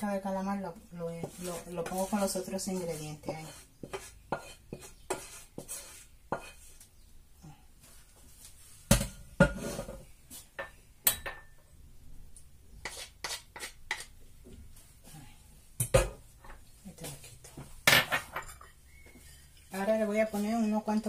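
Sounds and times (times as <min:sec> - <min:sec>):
wooden spoon scraping a pan: 0:01.0 - 0:06.9, 0:07.9 - 0:10.6, 0:12.8 - 0:14.2.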